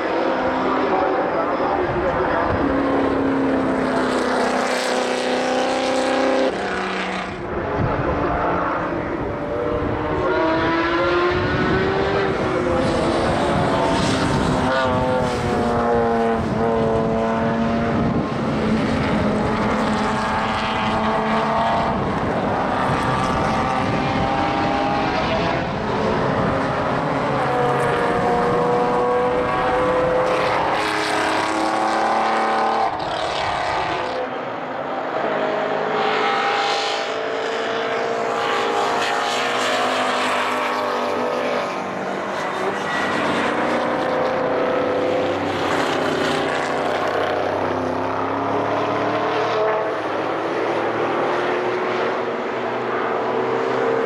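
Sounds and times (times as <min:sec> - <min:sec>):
racing car engines at full throttle: 0:00.0 - 0:54.0
wind rumble on microphone: 0:07.4 - 0:30.6.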